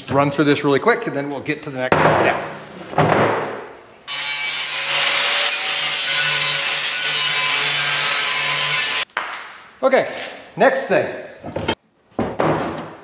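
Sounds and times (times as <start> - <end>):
angle grinder grinding metal: 4.1 - 9.1.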